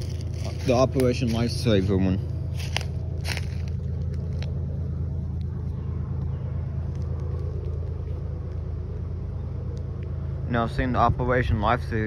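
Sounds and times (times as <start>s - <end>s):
locomotive engine rumble: 0.0s - 12.0s.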